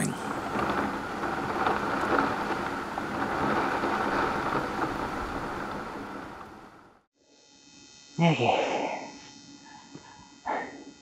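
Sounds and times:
heavy rain pouring: 0.0s - 7.0s.

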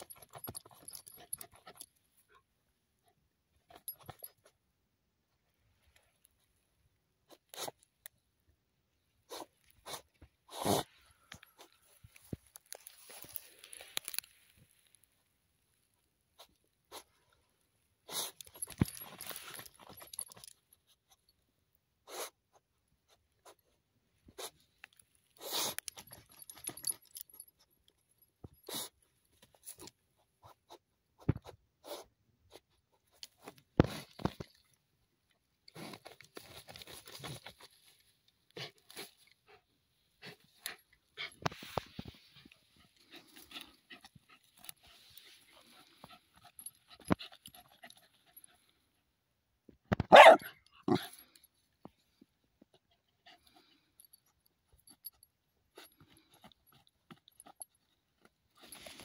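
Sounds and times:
dog digging in soil: 9.2s - 15.0s, 16.3s - 17.4s, 18.0s - 21.2s, 22.0s - 27.1s, 28.6s - 34.6s, 35.6s - 48.8s, 55.7s - 59.0s.

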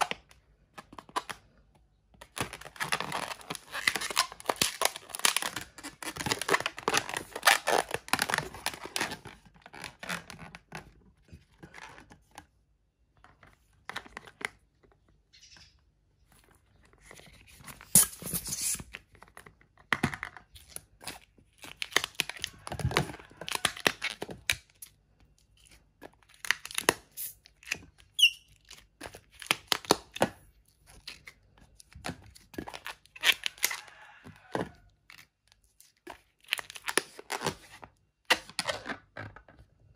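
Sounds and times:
balloons rubbing and squeaking: 2.8s - 10.7s, 17.1s - 18.9s, 28.1s - 28.6s.

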